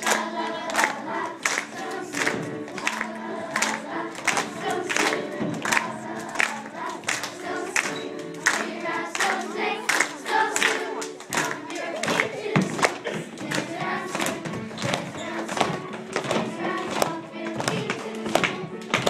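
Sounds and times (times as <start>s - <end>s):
sharp hand claps: 0.0s - 15.0s.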